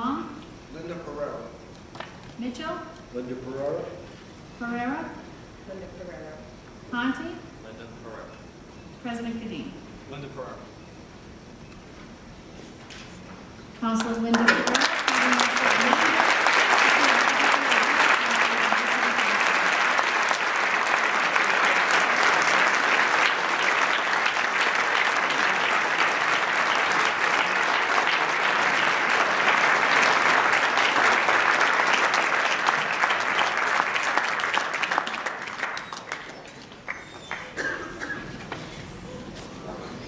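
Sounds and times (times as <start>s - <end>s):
crowd applauding: 14.0s - 37.8s.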